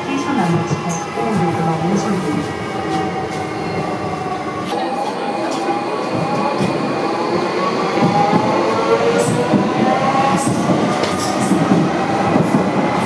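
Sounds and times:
wheels rumbling on rail: 0.0s - 13.0s.

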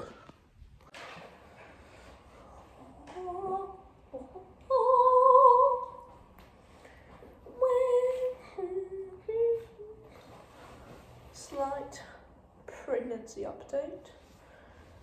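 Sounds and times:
woman singing wordless tune: 2.8s - 6.1s, 7.5s - 10.1s.

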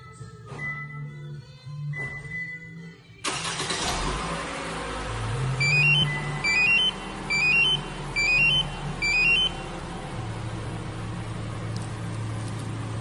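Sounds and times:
car engine running: 3.3s - 13.0s
remote fob beeping rising notes: 5.6s - 9.8s.

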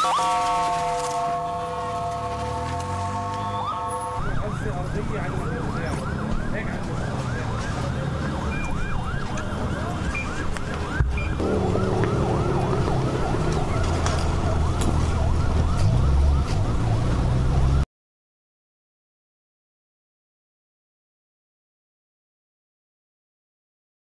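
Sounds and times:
siren yelping: 0.0s - 17.8s
low rumble: 11.0s - 16.4s.

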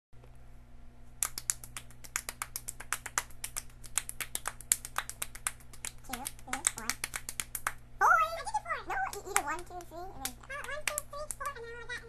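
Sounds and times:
low steady hum: 0.2s - 12.0s
hands clapping: 1.2s - 7.8s, 9.0s - 11.6s.

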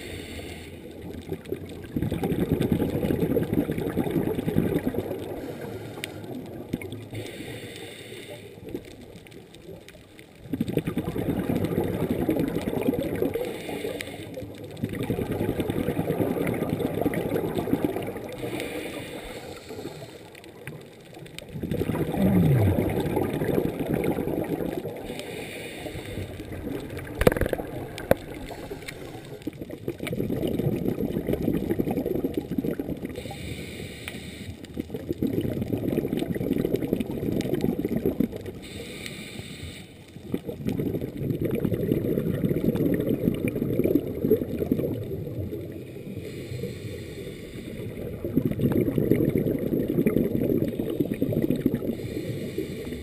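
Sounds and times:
regulator inhalation hiss: 0.0s - 0.8s, 7.1s - 8.6s, 13.5s - 14.4s, 18.4s - 20.3s, 25.1s - 26.5s, 33.2s - 34.6s, 38.6s - 40.1s, 45.9s - 48.0s, 52.0s - 53.0s
exhaled air bubbling underwater: 0.0s - 53.0s.

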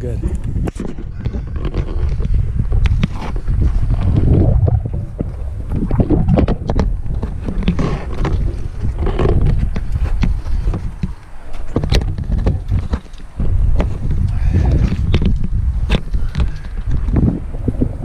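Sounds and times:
heavy low rumble: 0.0s - 10.8s.

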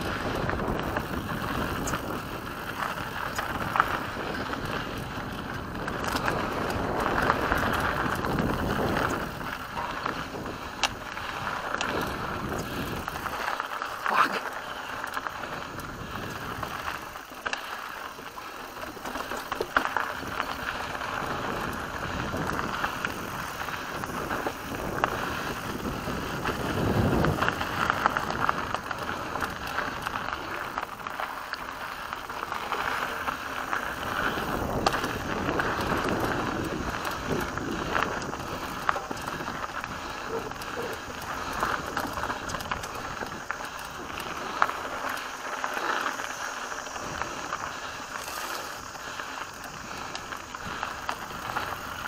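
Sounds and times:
bike clicks and rattles: 0.0s - 52.0s
bike tyres rolling on dirt: 0.0s - 52.0s.

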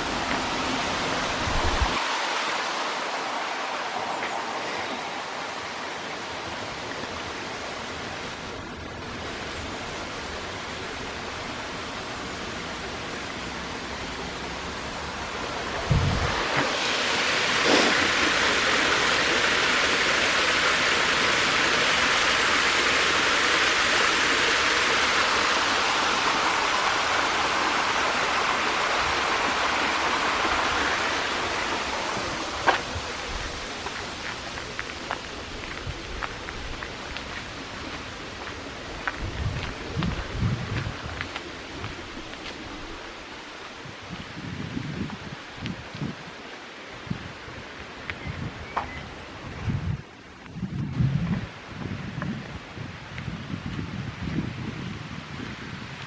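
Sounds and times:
stream rushing over stones: 0.0s - 56.0s.

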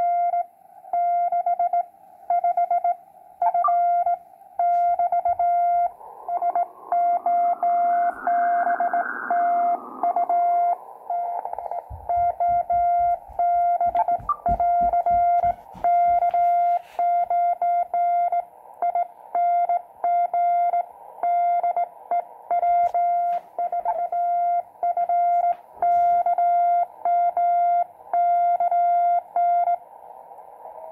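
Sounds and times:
morse code tone: 2.4s - 18.4s, 22.6s - 29.6s
static crackles: 3.4s - 17.4s, 22.6s - 26.5s
radio band hiss: 4.7s - 17.1s, 22.7s - 24.6s, 25.3s - 26.3s.

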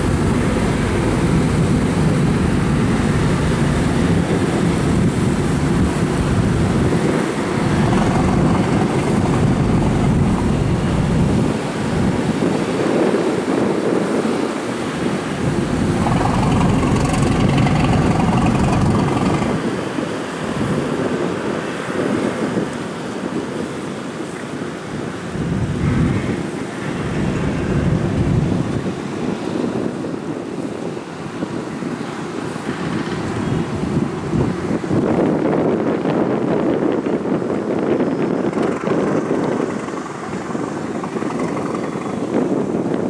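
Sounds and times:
high steady whine: 0.0s - 12.2s
ferry engines running: 0.0s - 12.5s, 14.8s - 20.6s, 36.9s - 43.0s
water churning: 0.0s - 12.9s, 14.0s - 20.7s, 37.2s - 43.0s
wind buffeting microphone: 0.0s - 43.0s.

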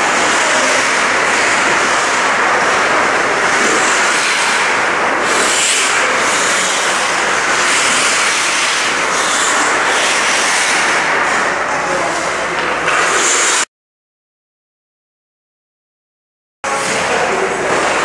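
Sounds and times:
ice rink rushing noise: 0.0s - 13.7s, 16.7s - 18.0s
skate blades scraping ice: 0.3s - 13.7s.

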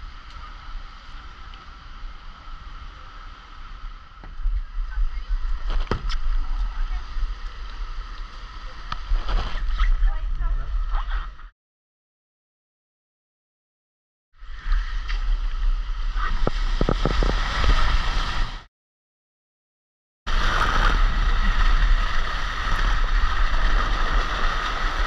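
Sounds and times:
low rumble of wind on microphone: 0.0s - 11.5s, 14.4s - 18.7s, 20.3s - 25.0s
water rushing down a slide: 14.5s - 18.7s, 20.3s - 25.0s.

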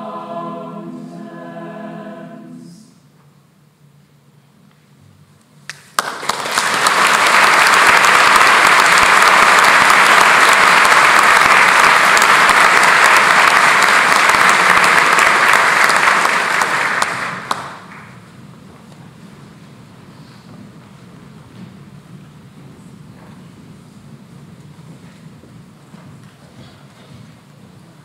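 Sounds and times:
large audience applauding: 5.7s - 18.3s.

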